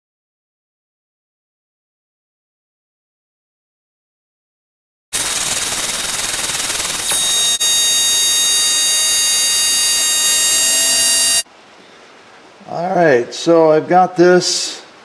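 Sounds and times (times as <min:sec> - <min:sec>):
grinder grinding metal: 0:05.2 - 0:11.4.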